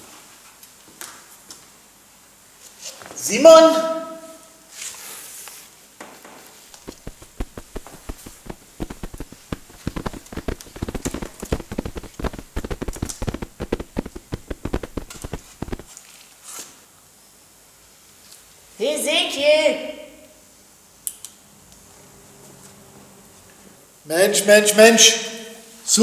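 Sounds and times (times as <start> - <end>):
rapid patter of small taps: 6.7 - 15.9.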